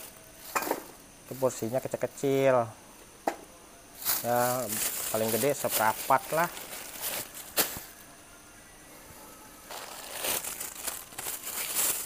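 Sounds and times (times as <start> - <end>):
plastic bags crinkling: 4.0 - 8.0, 9.7 - 12.0.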